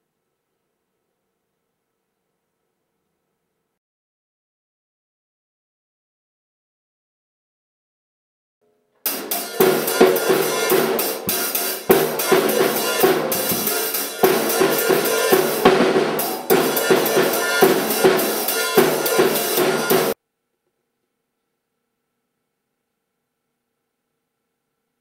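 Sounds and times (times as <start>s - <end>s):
acoustic drum kit playing: 9.1s - 20.2s.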